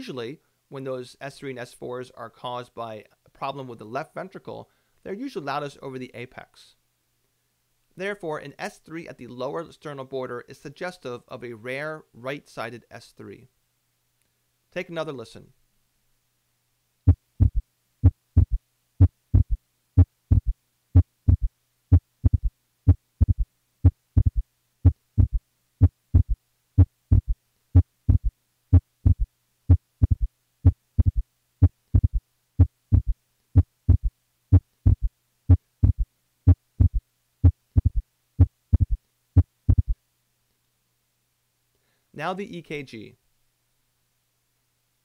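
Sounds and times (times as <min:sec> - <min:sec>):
heartbeat: 0:17.1 - 0:40.0.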